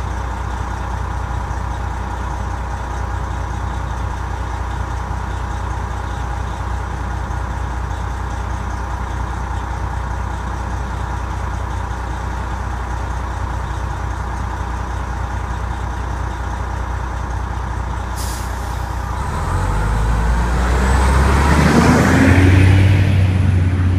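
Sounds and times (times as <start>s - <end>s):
diesel engine idling: 0.0s - 23.9s
air brake hiss: 18.2s - 19.2s.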